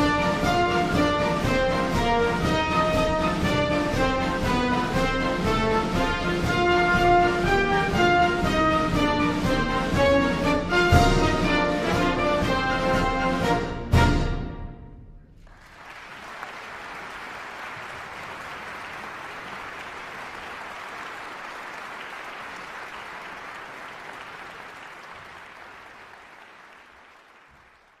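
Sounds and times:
audience applause: 15.4 - 28.0.

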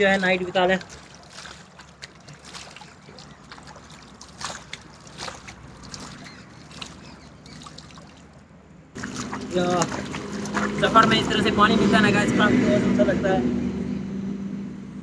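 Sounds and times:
water splashing and dripping: 0.0 - 11.9
flowing stream water: 0.0 - 12.7.

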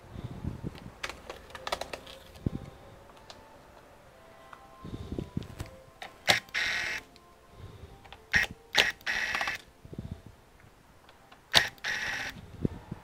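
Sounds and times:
electric screwdriver whirring: 6.2 - 7.0, 8.3 - 9.6, 11.5 - 12.4
screwdriver click: 11.5 - 12.4.

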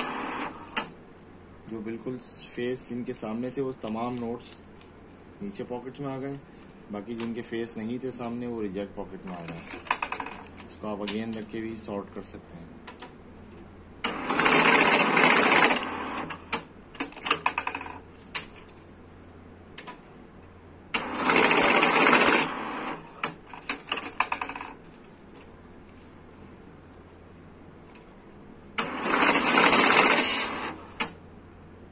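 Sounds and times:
banknote counting machine running: 9.3 - 10.5, 14.1 - 16.4, 17.1 - 18.0, 21.0 - 24.8, 28.8 - 31.0.

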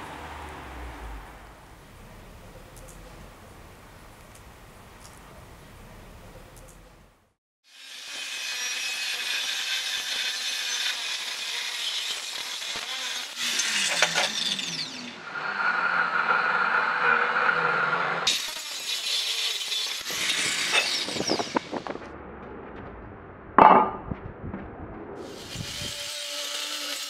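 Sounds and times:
angle grinder cutting steel: 7.7 - 22.0, 25.2 - 27.0.

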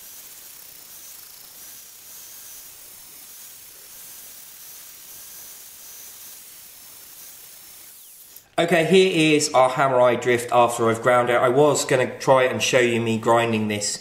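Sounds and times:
angle grinder grinding steel: 0.0 - 8.6.

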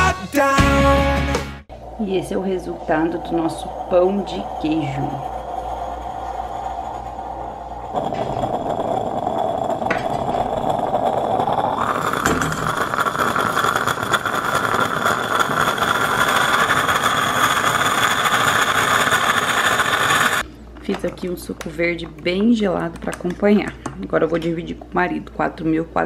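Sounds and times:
moka pot hissing and sputtering: 1.7 - 20.5.

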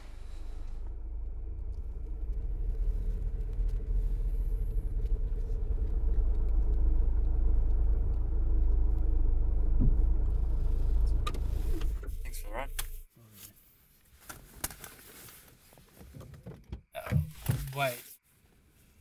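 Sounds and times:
faint hum: 0.0 - 13.0
car engine and road rumble: 0.0 - 13.1.

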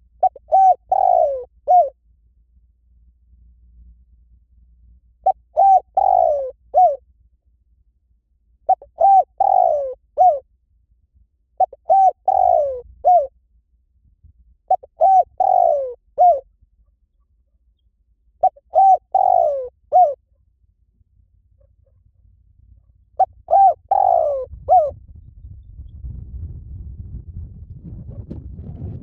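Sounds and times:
dove cooing: 0.0 - 2.0, 5.2 - 7.0, 8.7 - 10.4, 11.6 - 13.3, 14.7 - 16.4, 18.4 - 20.2, 23.2 - 25.0.

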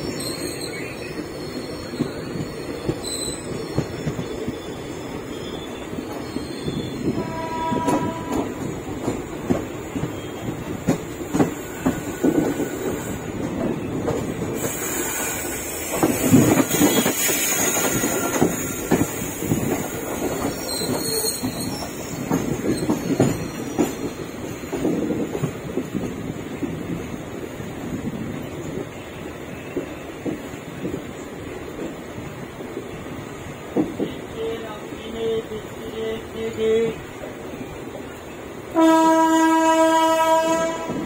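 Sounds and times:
high wheel squeals: 0.1 - 7.2, 19.9 - 24.1
train wheels clattering over rails: 5.9 - 34.3.

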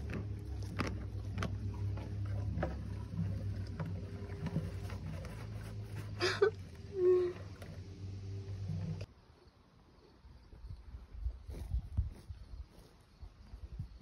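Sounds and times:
horse gulping water: 0.0 - 9.1
water sloshing in a bucket: 0.0 - 9.1.

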